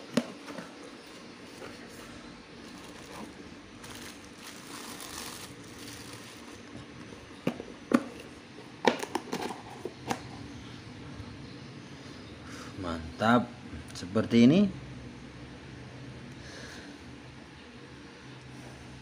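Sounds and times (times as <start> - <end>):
plastic bag crinkling: 2.6 - 6.9.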